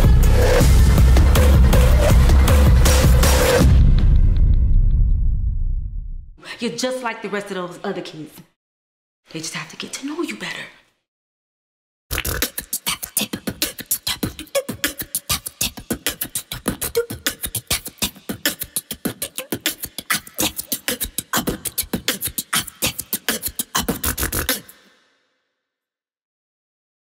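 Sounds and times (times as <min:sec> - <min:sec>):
boy beatboxing: 0:12.1 - 0:24.9.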